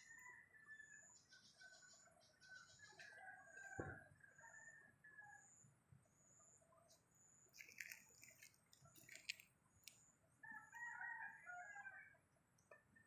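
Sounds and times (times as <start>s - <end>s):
distant rooster crowing: 0.0s - 1.2s, 2.8s - 5.6s, 10.4s - 12.2s.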